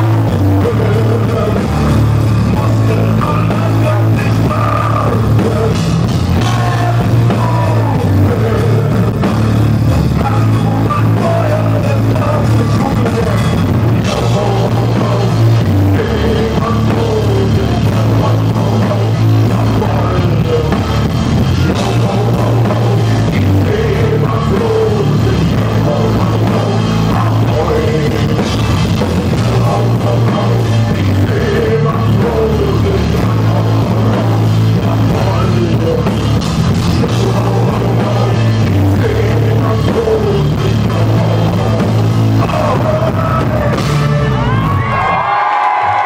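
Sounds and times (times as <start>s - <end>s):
live rock band with singing: 0.0s - 46.0s
crowd shouting: 44.0s - 46.0s.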